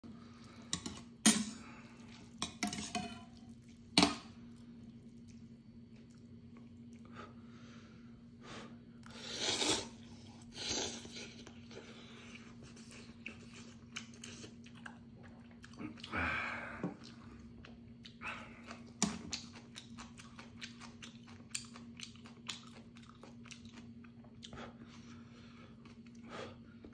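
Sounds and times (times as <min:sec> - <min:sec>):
steady low hum: 0:00.0 - 0:26.9
metal utensils clinking on a pot: 0:00.8 - 0:01.6, 0:02.4 - 0:03.3
chewing: 0:03.3 - 0:07.1, 0:10.0 - 0:16.2, 0:16.9 - 0:24.8.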